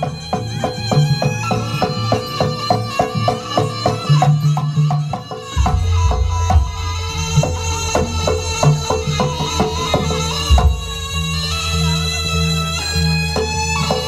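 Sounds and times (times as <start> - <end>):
bright struck notes: 0.0 - 11.6
drumming: 0.0 - 14.0
low held tones: 4.5 - 12.6.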